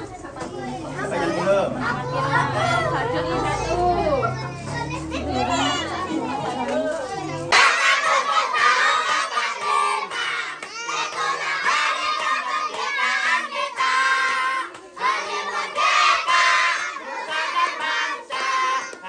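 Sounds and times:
children singing together: 7.5s - 19.0s.

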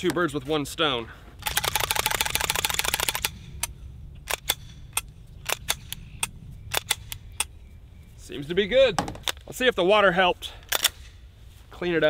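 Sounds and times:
pistol action clicking: 1.4s - 7.6s.

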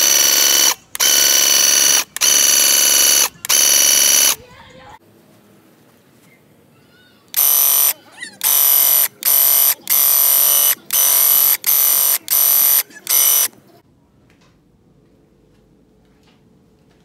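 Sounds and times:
paint sprayer pump buzzing: 0.0s - 4.4s, 7.4s - 13.6s.

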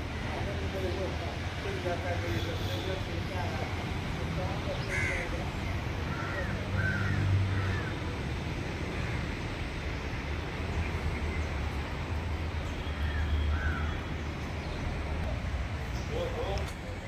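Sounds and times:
crows cawing: 4.8s - 8.2s, 8.9s - 9.4s, 13.0s - 14.1s.

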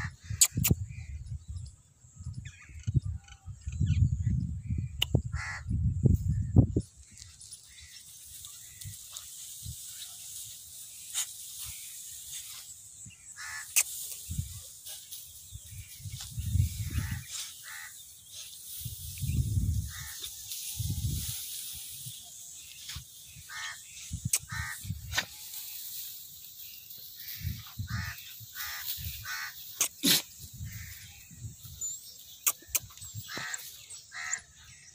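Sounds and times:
crows cawing: 5.3s - 5.7s, 13.4s - 13.8s, 16.9s - 18.0s, 19.9s - 20.3s, 23.5s - 24.9s, 27.2s - 29.9s, 33.3s - 34.5s
plants rustling and crackling: 7.0s - 30.9s.

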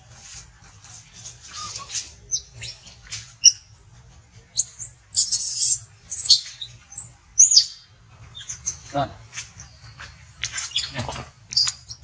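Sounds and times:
baby monkey crying: 4.6s - 6.4s.

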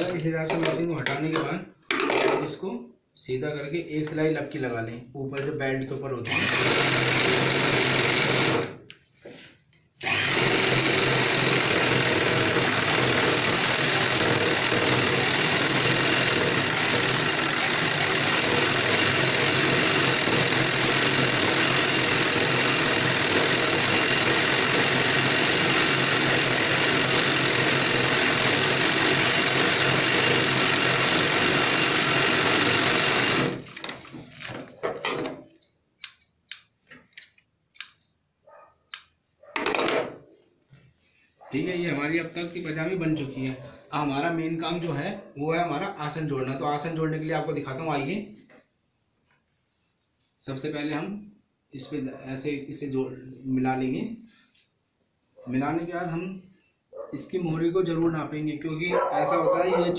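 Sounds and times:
sewing machine stitching: 6.3s - 8.8s, 10.0s - 34.8s.

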